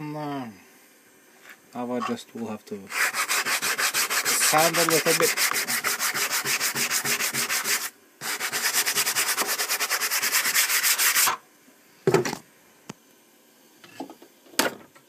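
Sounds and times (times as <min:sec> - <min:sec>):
sandpaper rubbing on wood: 0:02.9 - 0:11.4.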